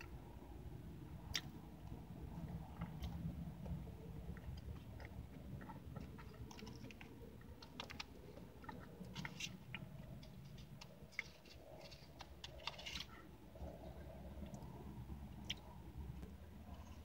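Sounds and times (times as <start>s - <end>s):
soft chewing: 1.0s - 17.0s
plastic fork scraping foil tin: 10.3s - 13.2s.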